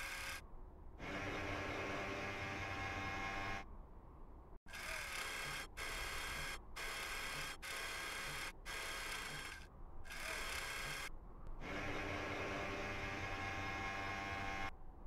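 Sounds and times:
mechanical whirring: 4.7s - 14.7s
steady low hum: 5.5s - 15.0s.

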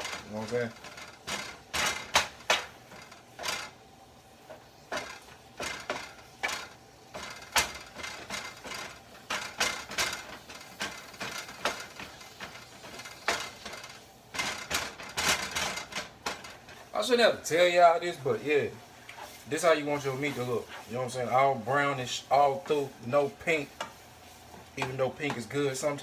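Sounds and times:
utensil chopping meat in a pan: 0.0s - 16.9s, 18.1s - 26.0s
sharp taps on pan: 1.3s - 3.6s.

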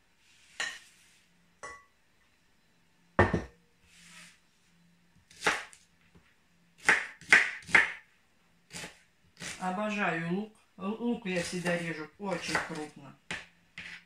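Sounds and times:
knife chopping on cutting board: 6.8s - 8.0s, 12.4s - 14.0s.

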